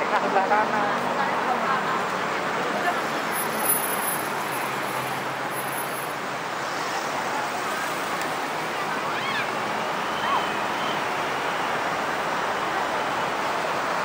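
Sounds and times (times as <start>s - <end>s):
city traffic noise: 0.0s - 14.0s.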